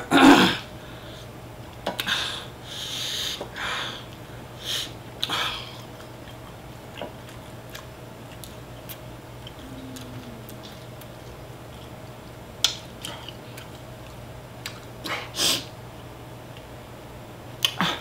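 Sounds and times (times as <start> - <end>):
woman sniffing and hissing breaths: 2.3 - 5.5.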